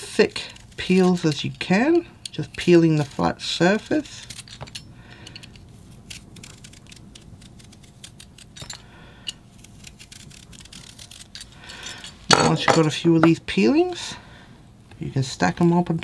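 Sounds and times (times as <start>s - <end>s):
peeler scraping a carrot: 0.0s - 4.7s, 5.4s - 8.6s, 9.5s - 11.5s.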